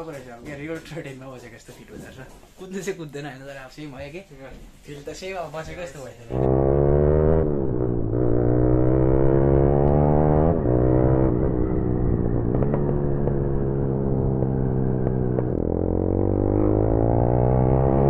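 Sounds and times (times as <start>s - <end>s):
motorcycle engine accelerating: 6.3s - 18.0s.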